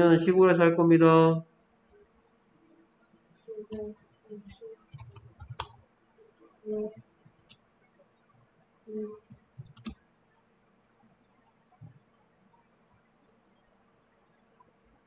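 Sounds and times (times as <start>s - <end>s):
keyboard keys clicking: 3.6s - 5.8s, 6.9s - 7.6s, 9.1s - 10.0s.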